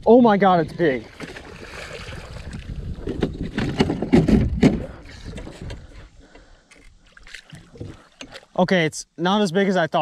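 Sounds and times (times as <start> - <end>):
water splashing: 0.4 - 3.3, 7.0 - 8.6
rod and reel clattering on hull: 1.1 - 6.1, 6.7 - 8.6.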